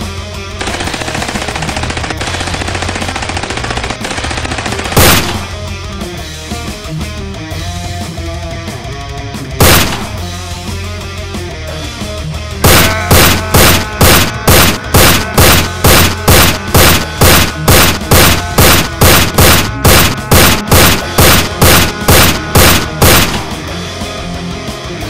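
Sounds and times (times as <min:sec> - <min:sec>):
loud gunshots: 0:00.6 - 0:05.6, 0:09.6 - 0:10.3, 0:12.6 - 0:23.6.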